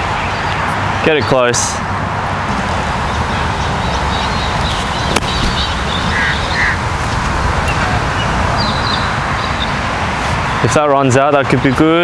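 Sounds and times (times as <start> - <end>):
low rumble of wind: 0.0 - 12.0
birds calling: 2.5 - 10.7
golf club striking ball: 4.6 - 5.8.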